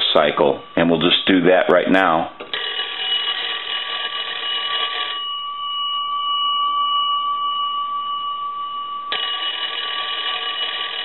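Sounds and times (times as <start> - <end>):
telephone bell gongs ringing: 2.5 - 5.5, 9.1 - 11.0.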